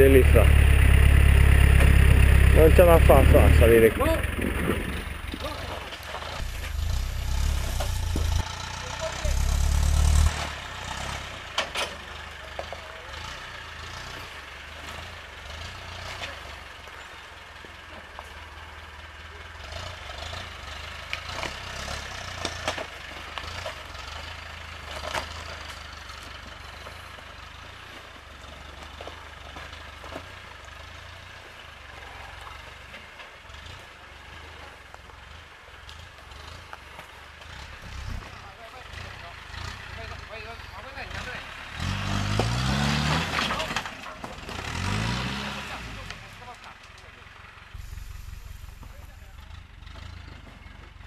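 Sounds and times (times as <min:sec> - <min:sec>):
engine running at low revs: 0:00.0 - 0:17.0, 0:31.1 - 0:51.0.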